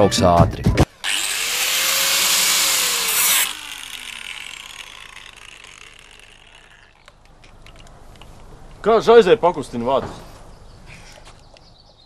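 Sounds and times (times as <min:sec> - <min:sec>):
grinder motor whining down: 0:01.0 - 0:07.0
angle grinder grinding: 0:01.0 - 0:07.1.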